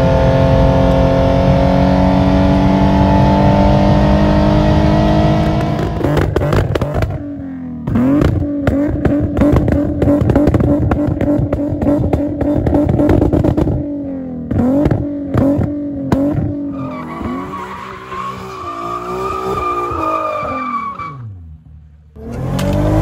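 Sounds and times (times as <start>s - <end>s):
car engine revving: 0.0s - 23.0s
crackling exhaust pops: 5.4s - 7.2s, 7.9s - 13.8s.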